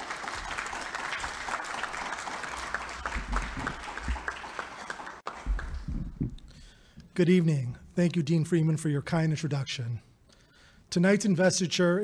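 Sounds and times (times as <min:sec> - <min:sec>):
audience applauding: 0:00.0 - 0:06.2
low thumps: 0:05.4 - 0:06.6.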